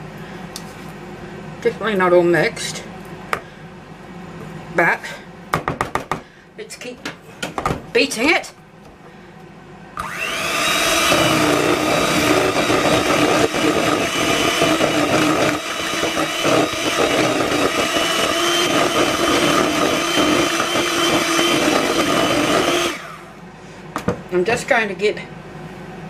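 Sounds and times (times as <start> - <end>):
electric hand mixer whirring: 10.0 - 23.4
beaters whisking batter in bowl: 11.0 - 23.0.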